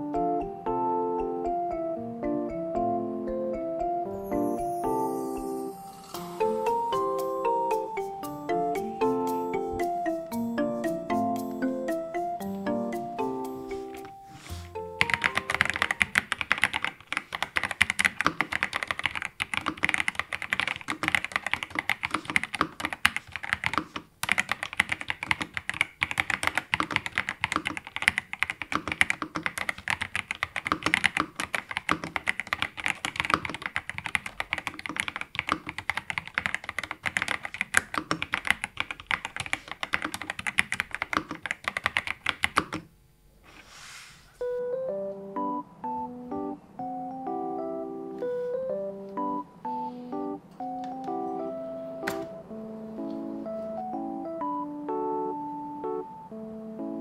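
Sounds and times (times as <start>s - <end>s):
mechanical keyboard typing: 15.0s - 42.9s.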